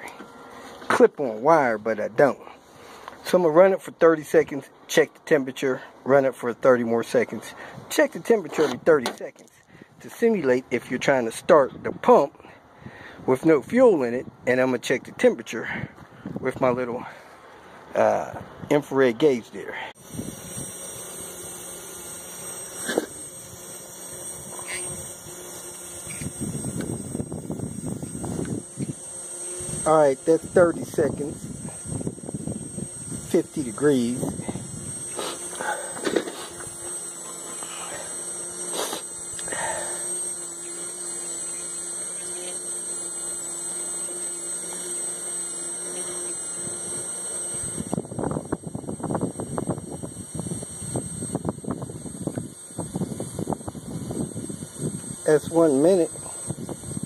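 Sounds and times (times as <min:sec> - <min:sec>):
fuel pump motor humming: 0:19.7 - 0:57.0
wind buffeting microphone: 0:30.4 - 0:33.3.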